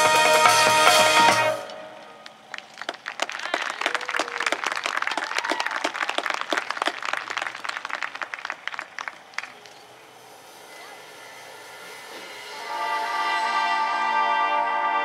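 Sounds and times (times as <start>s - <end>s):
band music: 0.0s - 2.5s, 12.5s - 15.0s
crowd applauding and cheering: 0.0s - 10.0s.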